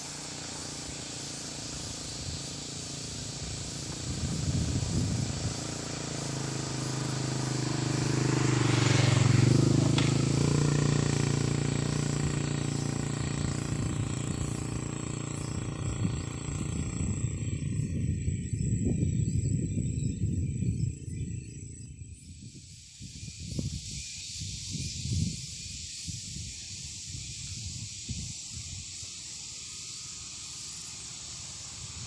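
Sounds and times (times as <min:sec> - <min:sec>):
outdoor hiss: 0:00.0 - 0:16.5, 0:22.5 - 0:32.0
vehicle engine passing by: 0:00.0 - 0:18.8
high-pitched whine: 0:00.0 - 0:22.4.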